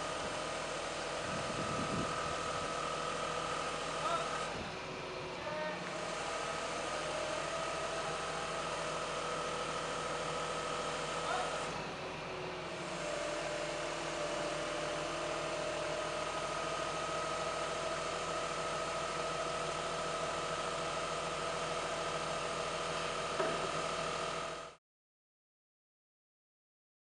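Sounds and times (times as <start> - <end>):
held whine: 0.0 - 9.1
truck engine running: 0.0 - 24.8.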